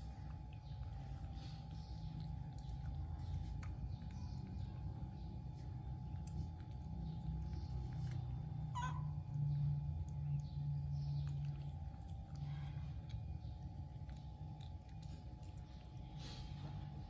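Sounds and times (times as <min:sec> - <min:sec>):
steady low hum: 0:00.0 - 0:17.0
monkey squeak: 0:08.7 - 0:09.1.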